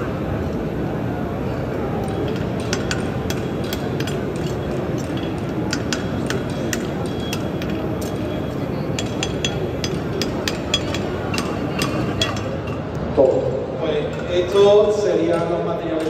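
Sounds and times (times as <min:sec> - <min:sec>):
background murmur: 0:00.0 - 0:16.0
hammer striking iron: 0:02.6 - 0:12.8.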